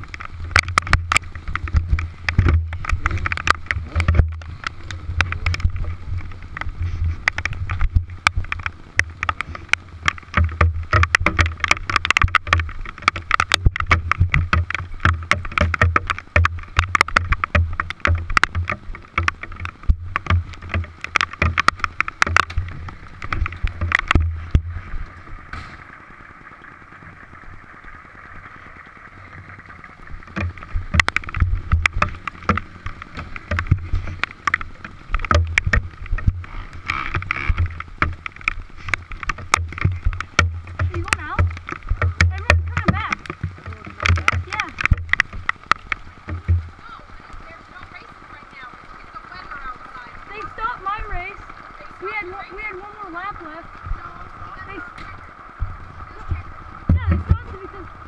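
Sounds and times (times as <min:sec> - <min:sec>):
hailstones clattering on helmet: 0:00.0 - 0:57.9
gusty wind rumble: 0:00.0 - 0:58.0
storm hiss: 0:22.6 - 0:32.2.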